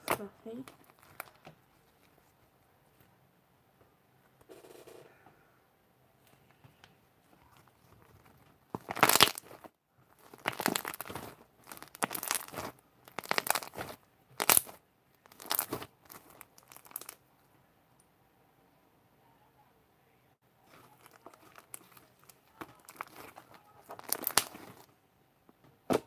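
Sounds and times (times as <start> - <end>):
slime squishing: 0.0 - 2.4, 7.2 - 17.3, 20.6 - 24.9.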